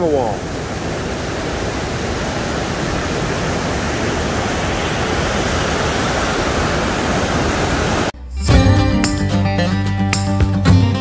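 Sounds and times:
waterfall rushing: 0:00.0 - 0:08.2.

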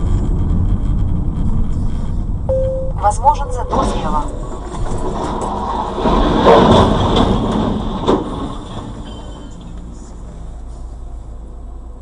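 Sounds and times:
road and engine noise: 0:00.0 - 0:12.0
truck crashing onto road: 0:03.7 - 0:10.2.

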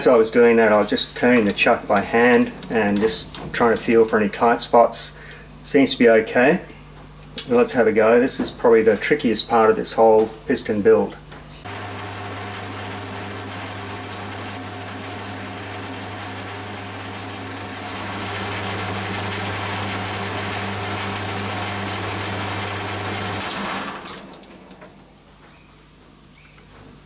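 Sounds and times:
metal lathe running: 0:00.0 - 0:04.4, 0:11.2 - 0:24.9
faint high whine: 0:00.0 - 0:11.7.

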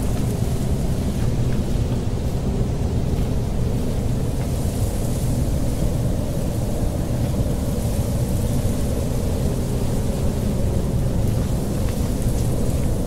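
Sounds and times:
wind blowing across microphone: 0:00.0 - 0:13.0.

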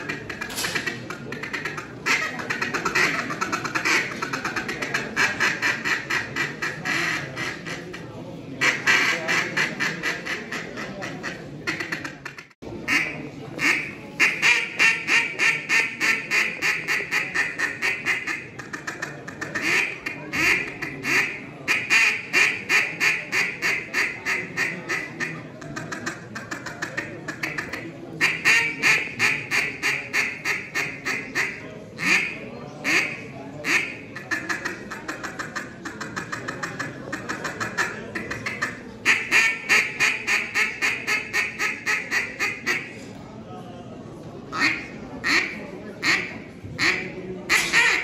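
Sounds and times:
duck call quacking: 0:00.0 - 0:08.0, 0:08.6 - 0:43.0, 0:44.5 - 0:48.0.

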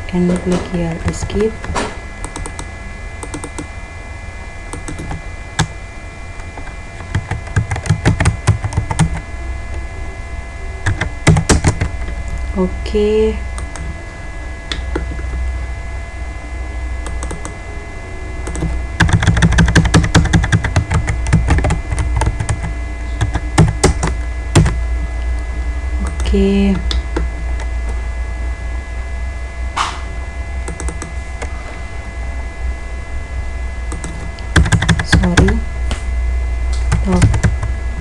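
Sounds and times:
low electrical hum: 0:00.0 - 0:38.0
keyboard typing: 0:00.3 - 0:03.7, 0:04.7 - 0:05.7, 0:06.4 - 0:09.2, 0:10.8 - 0:12.1, 0:13.6 - 0:13.9, 0:14.7 - 0:15.4, 0:17.0 - 0:17.6, 0:18.4 - 0:24.8, 0:26.0 - 0:27.7, 0:30.7 - 0:31.5, 0:33.9 - 0:35.6, 0:36.8 - 0:37.7.

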